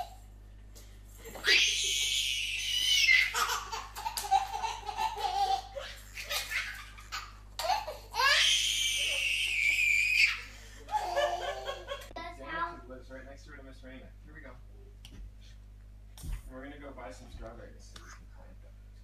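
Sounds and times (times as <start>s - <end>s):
baby laughing: 0.0s - 0.2s, 1.2s - 12.2s
baby squealing with laughter: 1.3s - 11.8s.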